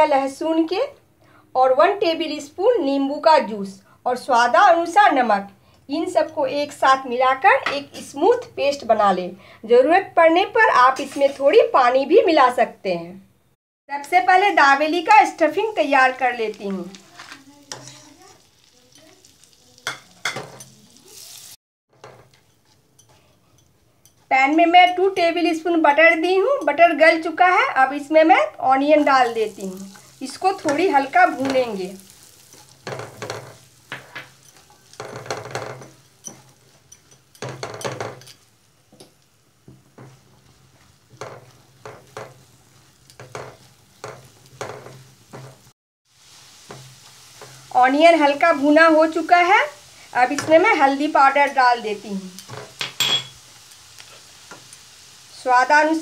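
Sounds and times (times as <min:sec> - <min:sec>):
spatula scraping pan: 0:10.9 - 0:11.6, 0:15.7 - 0:24.3, 0:28.9 - 0:55.0
butter sizzling in pan: 0:13.9 - 0:56.0.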